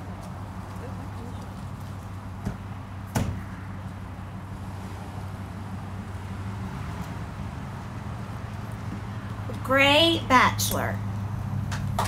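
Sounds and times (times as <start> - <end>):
outdoor background noise: 0.0 - 12.0
sharp knock: 2.4 - 3.4.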